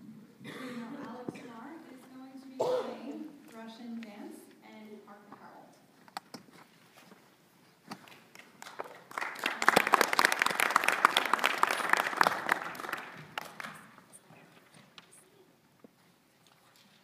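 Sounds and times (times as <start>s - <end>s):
audience applauding: 8.4s - 14.1s.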